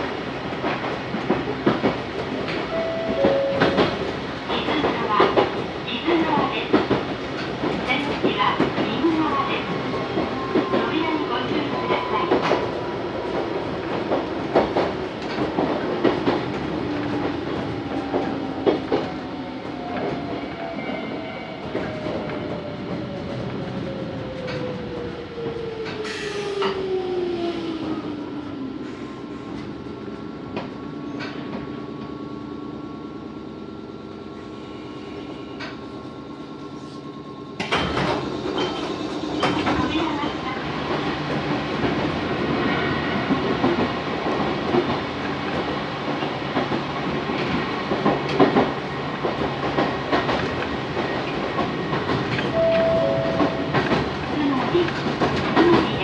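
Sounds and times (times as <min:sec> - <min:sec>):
stopped train humming: 0:00.0 - 0:20.5, 0:46.5 - 0:56.0
train rumble and wheel clatter: 0:00.0 - 0:56.0.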